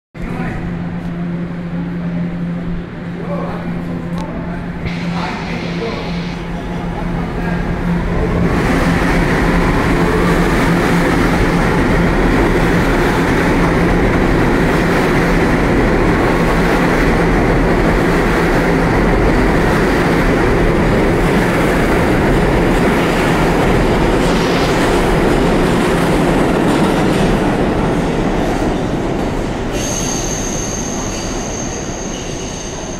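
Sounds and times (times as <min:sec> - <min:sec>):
wheels rumbling on rail: 0:00.2 - 0:32.9
high thin squeal: 0:29.8 - 0:32.9.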